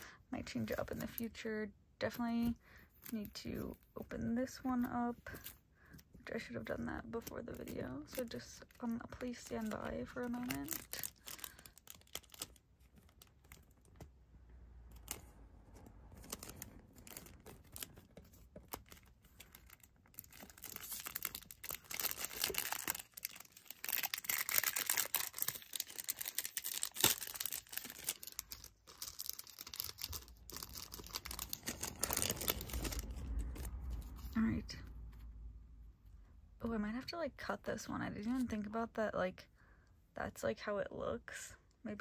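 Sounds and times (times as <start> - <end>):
packaging rustling and tearing: 7.2 - 14.1, 14.9 - 34.4.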